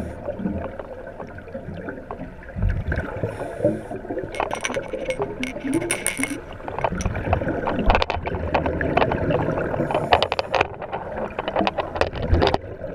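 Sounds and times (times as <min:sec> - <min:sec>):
sharp clicks and crackles: 0:04.4 - 0:12.7
underwater exhaled bubbles: 0:07.1 - 0:11.4.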